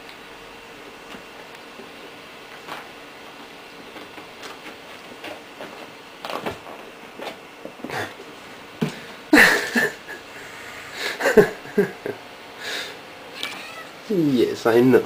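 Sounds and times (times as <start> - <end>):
kitten scratching leather chair: 2.5 - 7.8.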